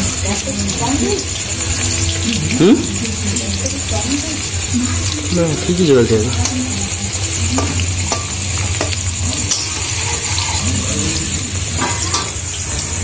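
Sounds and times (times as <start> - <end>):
potatoes sizzling in oil: 0.0 - 13.0.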